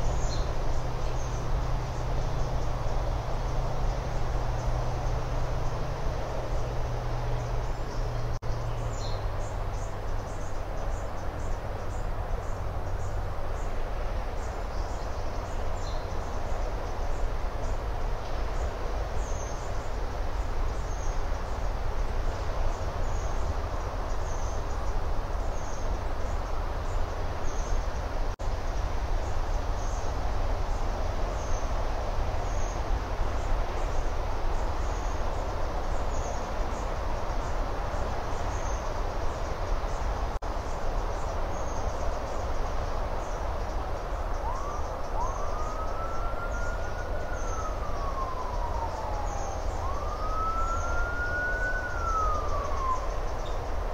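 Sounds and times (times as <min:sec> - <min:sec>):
rushing outdoor background noise: 0:00.0 - 0:53.9
distant emergency siren wailing: 0:44.1 - 0:53.9.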